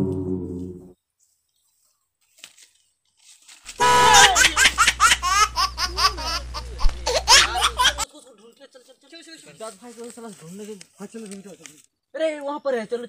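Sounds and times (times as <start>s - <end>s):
high-pitched cackling laugh: 3.8s - 8.0s
steady low hum: 3.8s - 8.0s.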